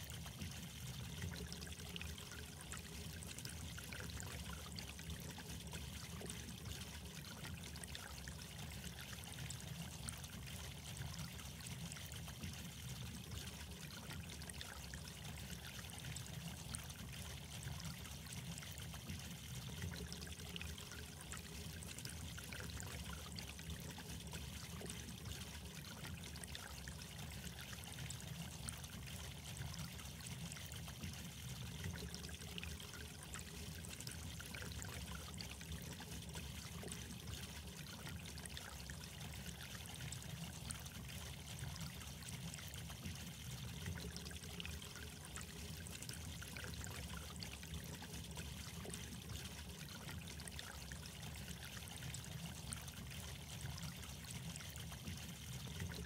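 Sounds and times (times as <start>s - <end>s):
trickle of running water: 0.0s - 56.0s.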